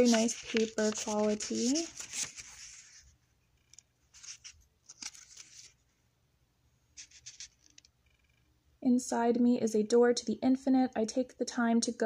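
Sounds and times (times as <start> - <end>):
light paper ticks: 0.0 - 2.4
paper pages turning: 0.0 - 5.8, 7.0 - 7.9.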